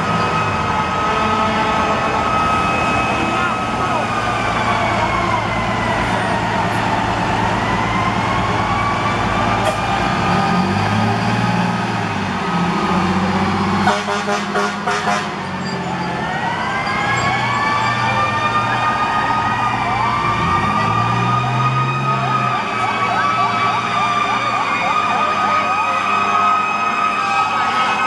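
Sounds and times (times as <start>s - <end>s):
fire truck sirens wailing: 0.0s - 28.0s
rapid pulsing horn blasts: 13.8s - 15.4s.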